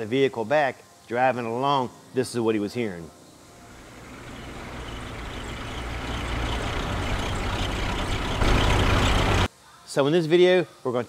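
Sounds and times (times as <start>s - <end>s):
car driving with tyre noise: 3.6s - 9.5s
low hum from wheel: 3.6s - 9.5s.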